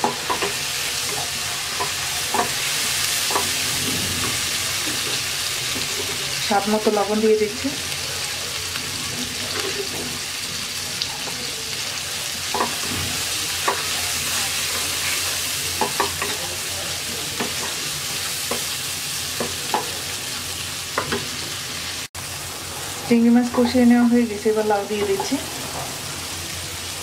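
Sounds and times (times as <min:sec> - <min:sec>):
spatula scraping wok: 0:00.0 - 0:06.8
prawns sizzling in oil: 0:00.0 - 0:27.0.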